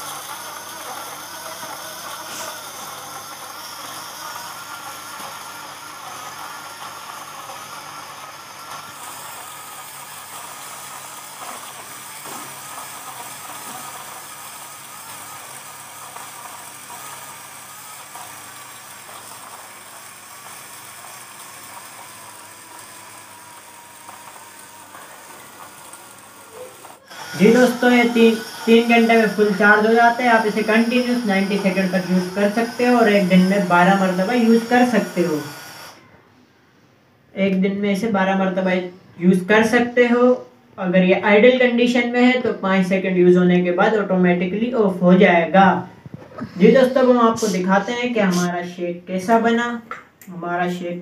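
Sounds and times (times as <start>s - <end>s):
blender motor running: 0.0s - 36.2s, 46.0s - 48.7s.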